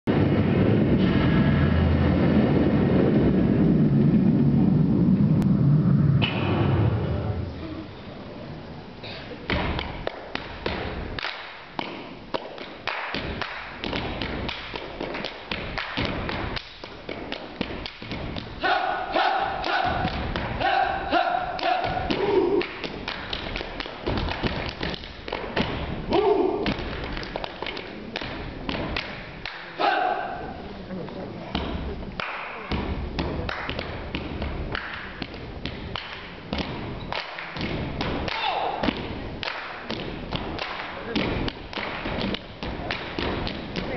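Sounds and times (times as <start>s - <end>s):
percussion hits and thumps: 9.4s - 18.6s, 19.6s - 20.7s, 21.6s - 29.5s, 31.5s - 43.9s
feet stomping on wooden stage: 11.8s - 18.6s, 21.6s - 29.0s.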